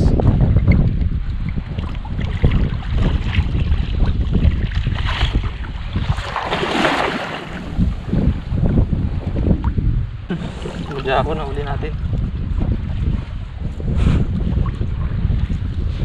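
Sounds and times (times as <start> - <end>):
wind buffeting microphone: 0.0 - 16.0
water sloshing around wader: 0.6 - 8.5, 9.6 - 13.7
cast net splashing into water: 6.0 - 7.7.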